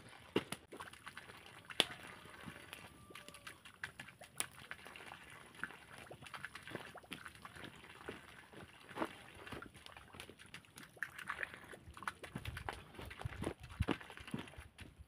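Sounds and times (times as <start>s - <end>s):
campfire crackling and popping: 0.3s - 7.7s.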